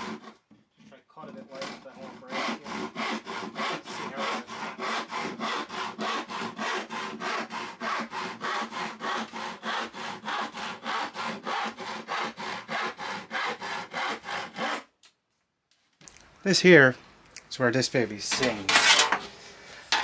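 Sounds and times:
hand saw cutting wooden board: 0:00.0 - 0:00.5, 0:01.2 - 0:14.9, 0:18.4 - 0:19.3.

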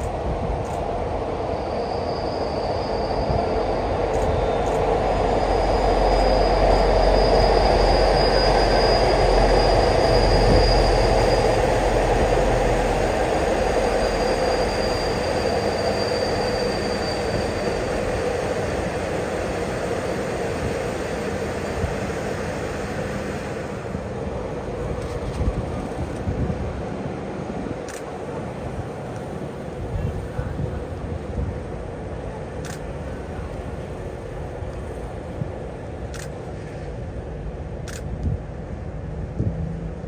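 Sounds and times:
train rumbling past: 0:00.0 - 0:40.0
high wheel squeal: 0:01.2 - 0:24.0.

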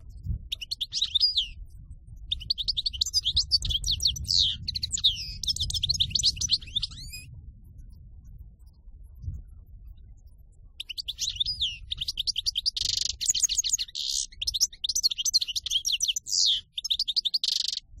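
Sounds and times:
goldfinch singing: 0:00.4 - 0:07.3, 0:10.8 - 0:18.0.

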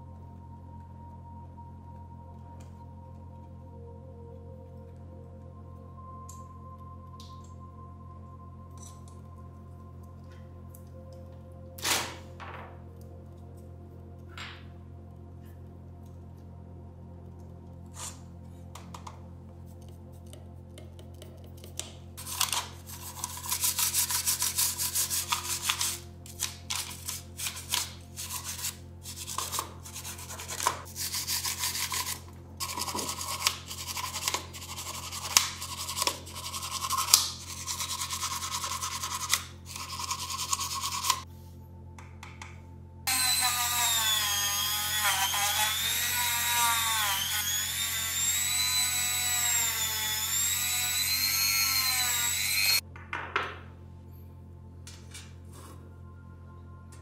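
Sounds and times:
brush scrubbing circuit board: 0:22.8 - 0:26.0, 0:27.3 - 0:41.2
rotary tool whining: 0:26.7 - 0:41.3, 0:43.1 - 0:52.8.

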